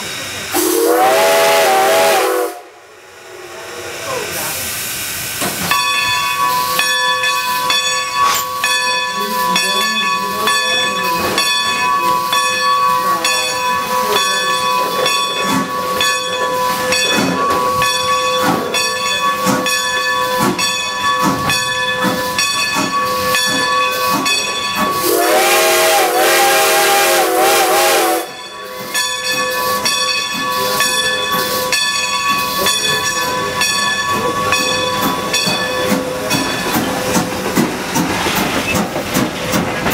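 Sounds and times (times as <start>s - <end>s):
steam hissing: 0.0s - 39.9s
steam whistle blowing: 0.5s - 3.4s, 25.0s - 28.4s.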